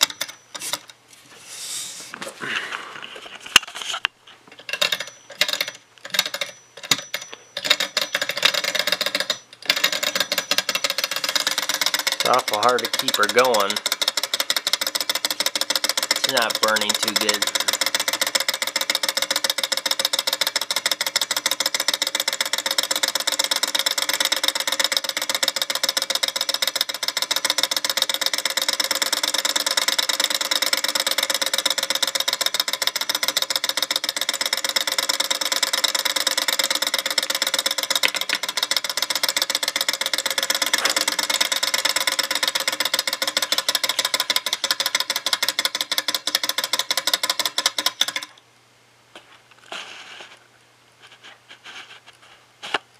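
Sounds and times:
model engine rapid clatter: 7.6s - 48.3s.

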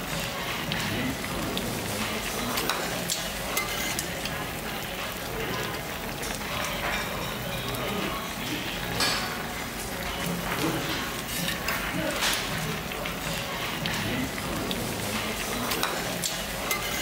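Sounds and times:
stew bubbling in pot: 0.0s - 17.0s.

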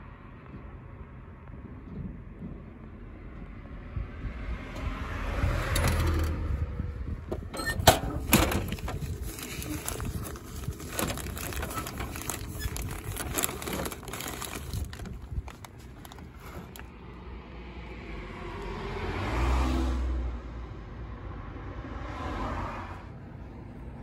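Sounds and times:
paper rustling and crinkling: 8.0s - 16.9s.

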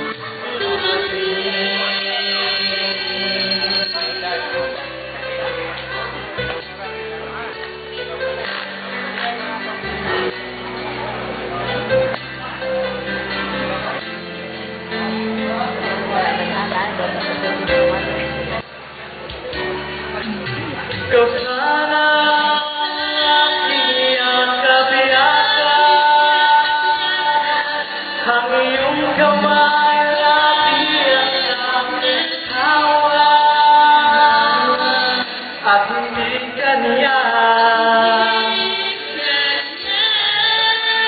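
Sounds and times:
man and woman singing duet: 0.0s - 4.6s, 21.0s - 41.0s
amplified backing music: 0.0s - 41.0s.

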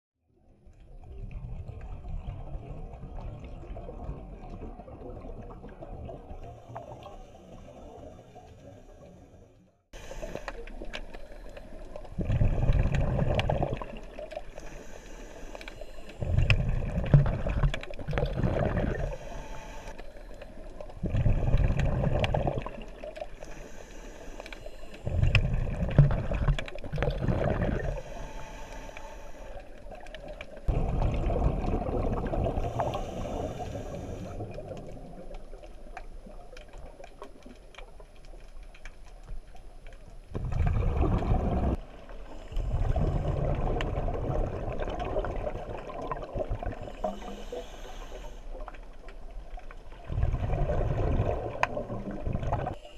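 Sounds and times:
regulator hiss on inhale: 6.4s - 9.4s, 10.0s - 12.0s, 14.4s - 16.7s, 18.8s - 21.8s, 23.2s - 25.7s, 27.7s - 30.7s, 32.5s - 34.9s, 42.2s - 43.4s, 46.6s - 49.1s
exhaled bubbles rushing: 11.8s - 14.4s, 16.2s - 19.2s, 20.9s - 23.3s, 25.1s - 28.1s, 30.2s - 35.6s, 40.3s - 42.0s, 42.6s - 47.3s, 49.8s - 52.8s.

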